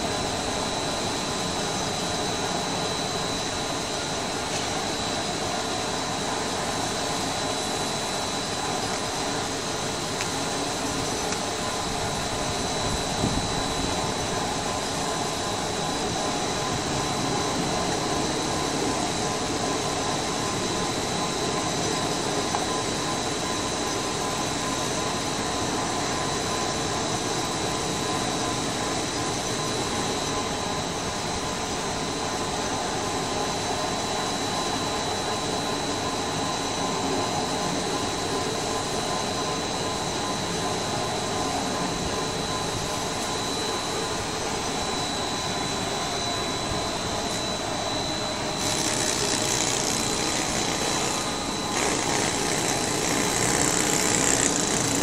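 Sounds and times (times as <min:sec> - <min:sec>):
chain saw cutting stone: 0:48.6 - 0:55.0.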